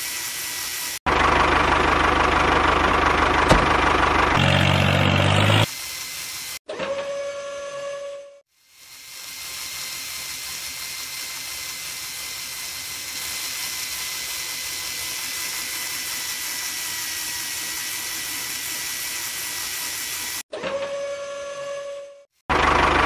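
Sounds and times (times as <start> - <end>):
small motor drilling into sand: 8.7 - 20.5.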